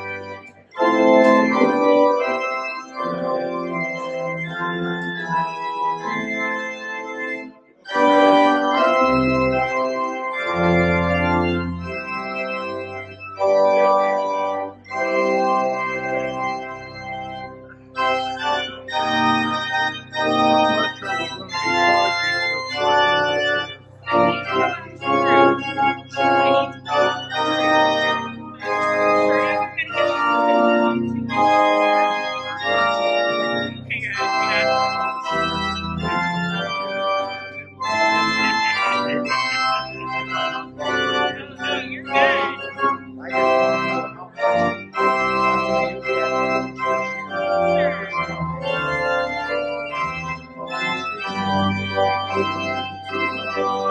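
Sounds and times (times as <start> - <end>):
organ playing chords: 0.0 - 53.9.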